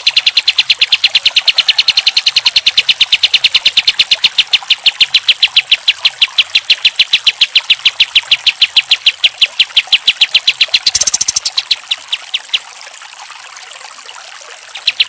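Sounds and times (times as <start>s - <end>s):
bulbul calling rapid high notes: 0.0s - 12.6s.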